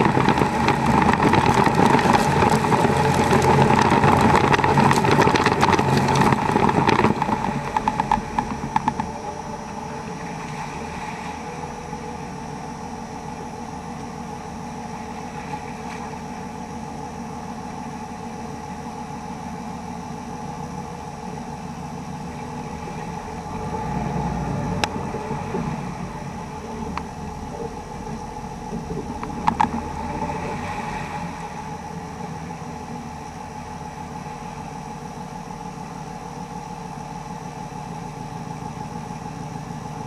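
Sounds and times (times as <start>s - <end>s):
water splashing against truck: 0.0s - 11.8s, 22.4s - 32.6s
diesel engine running: 0.0s - 40.0s.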